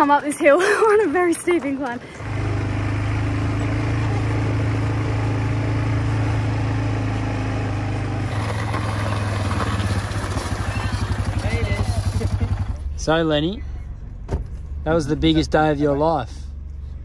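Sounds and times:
quad bike engine running: 0.0 - 13.2.

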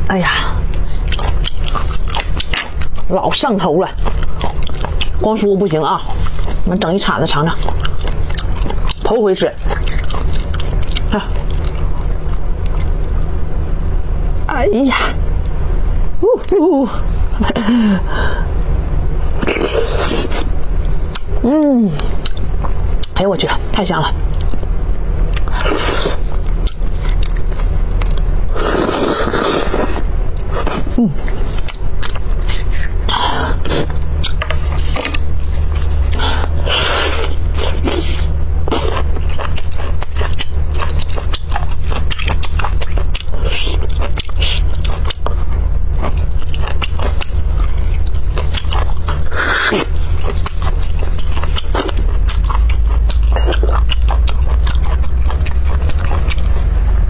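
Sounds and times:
steady low hum: 0.0 - 57.0
wet chewing and lip smacks: 0.7 - 3.1, 4.0 - 5.2, 7.3 - 13.1, 25.3 - 28.3, 37.0 - 56.7.

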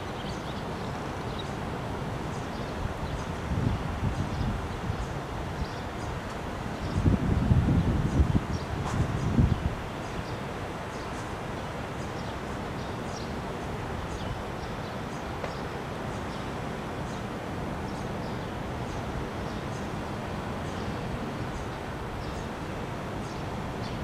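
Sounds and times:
wind gust on microphone: 0.0 - 10.8
city traffic hum: 0.0 - 24.0
small birds chirping: 0.0 - 24.0.

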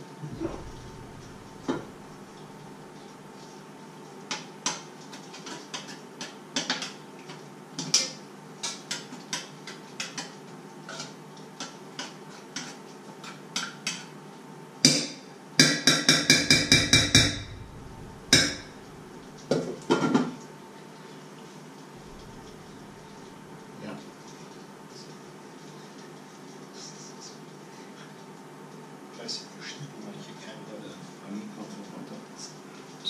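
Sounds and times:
knocks on a pot: 0.4 - 2.5, 14.9 - 20.3
ringing taps on a pot: 14.9 - 18.8.

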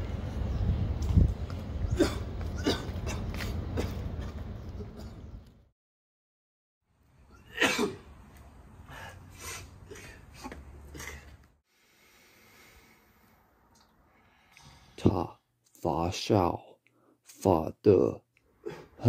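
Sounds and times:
man coughing: 1.9 - 4.0, 7.5 - 8.0
man sneezing: 7.5 - 8.0.

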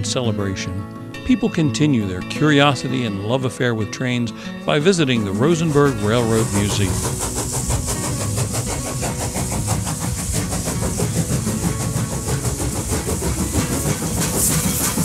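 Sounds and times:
locomotive rhythmic chugging: 4.1 - 15.0.

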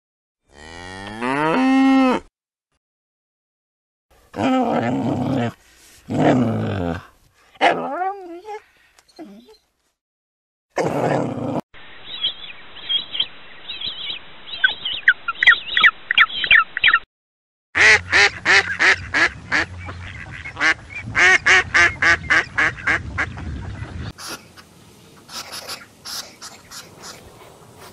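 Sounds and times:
high chirping bird calls: 12.0 - 17.1
ducks quacking: 17.8 - 27.9.

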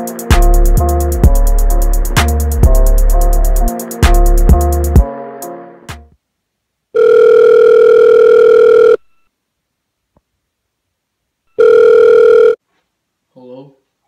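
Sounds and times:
telephone ringback tone: 7.0 - 9.3, 11.5 - 12.6.

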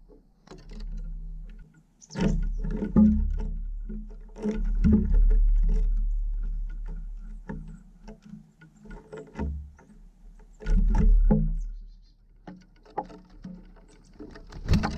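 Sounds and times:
bird knocking on wooden feeder: 10.6 - 11.8, 14.3 - 14.9.

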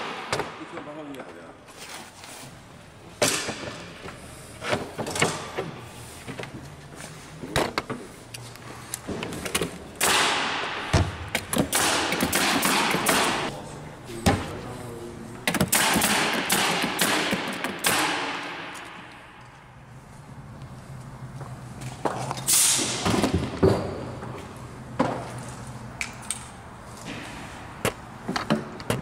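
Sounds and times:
pneumatic tool firing fasteners: 11.3 - 13.5, 15.5 - 18.5, 22.5 - 23.3.

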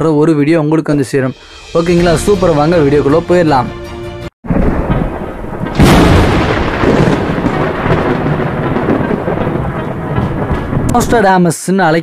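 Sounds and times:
thunder crack and rumble: 4.4 - 11.5.

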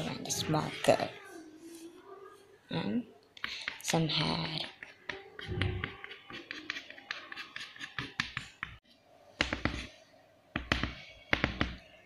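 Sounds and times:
chalk scratching on blackboard: 4.7 - 8.7
chalk knocks on blackboard: 9.4 - 9.9, 10.6 - 11.8.

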